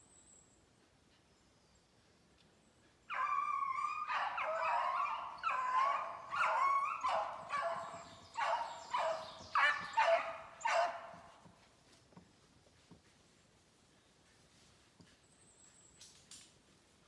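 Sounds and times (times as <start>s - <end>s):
beagles baying: 3.1s - 11.5s.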